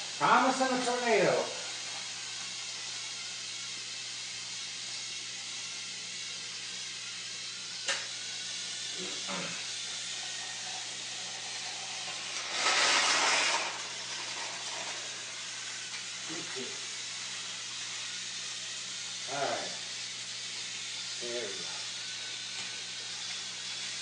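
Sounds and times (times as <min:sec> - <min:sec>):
rushing hissing burst: 0:06.6 - 0:24.0.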